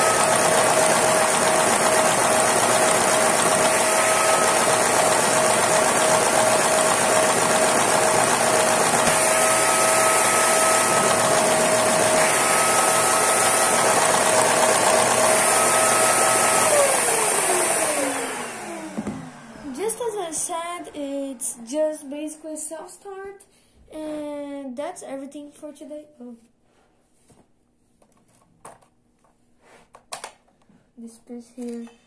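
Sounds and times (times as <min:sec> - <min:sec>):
toy engine mechanical running: 0:00.0 - 0:18.1
vacuum cleaner motors whining: 0:00.0 - 0:22.2.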